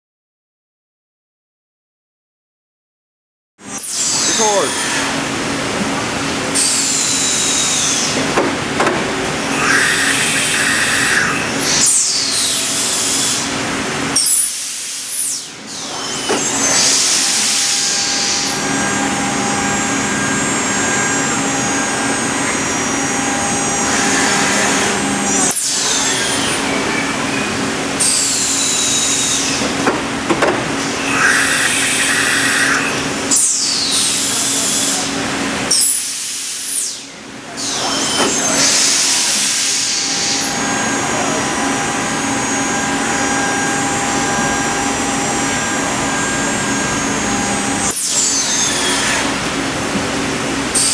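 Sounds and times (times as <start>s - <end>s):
steady machine hum: 4.0s - 35.7s, 38.4s - 50.9s
steady machine tone: 16.1s - 29.5s, 39.8s - 49.9s
spindles whining down: 37.6s - 49.4s.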